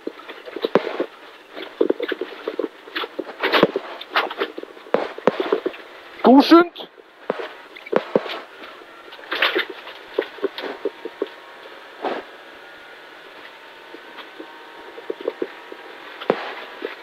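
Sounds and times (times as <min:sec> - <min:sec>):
sharp knocks and clatters: 0:00.0 - 0:05.9
muffled car running sound: 0:06.9 - 0:17.0.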